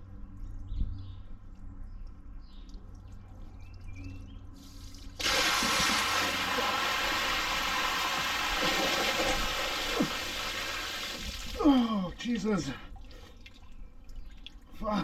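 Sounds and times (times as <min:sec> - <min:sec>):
water gushing onto gravel: 0:04.8 - 0:11.9.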